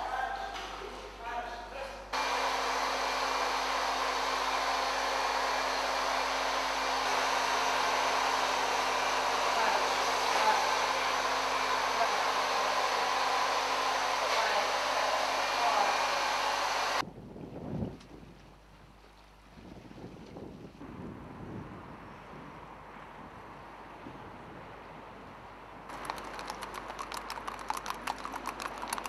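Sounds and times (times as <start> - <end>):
blow dryer running: 2.2 - 17.0.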